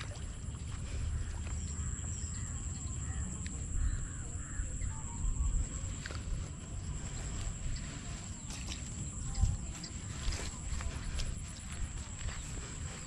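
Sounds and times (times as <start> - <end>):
faint cawing bird calls: 0.6 - 6.2.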